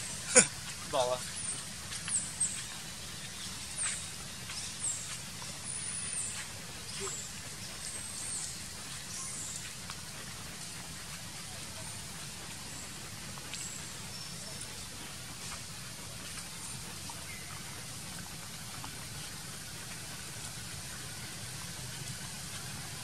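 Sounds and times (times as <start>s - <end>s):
small animals chirping and squeaking: 1.1s - 9.8s.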